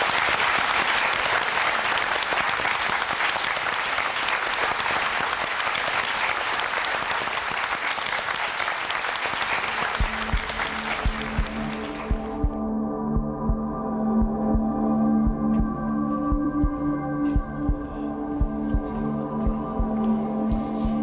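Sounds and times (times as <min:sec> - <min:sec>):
audience applauding: 0:00.0 - 0:12.6
music with low beat: 0:10.0 - 0:21.0.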